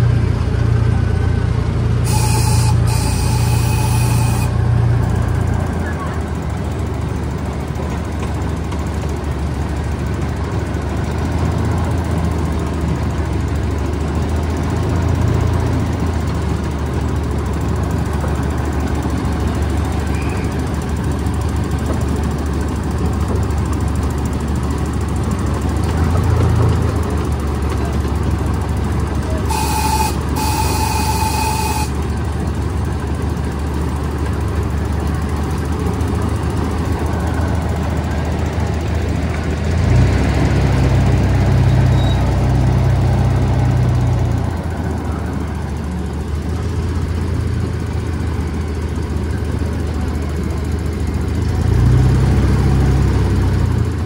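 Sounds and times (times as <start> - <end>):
miniature train rumble and clatter: 0.0 - 54.0
train horn blasts: 2.0 - 5.0, 29.3 - 32.2.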